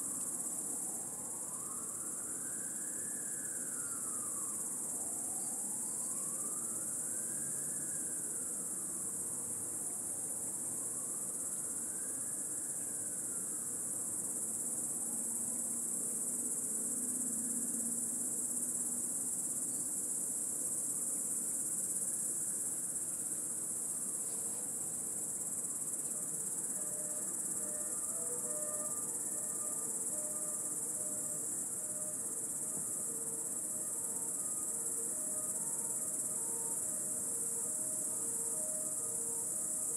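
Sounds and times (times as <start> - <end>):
cicadas singing: 20.8 - 39.9.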